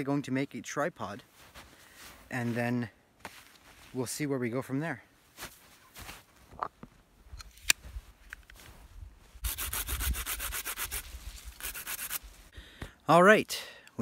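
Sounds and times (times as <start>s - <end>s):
hand saw cutting wood: 9.4s - 12.2s.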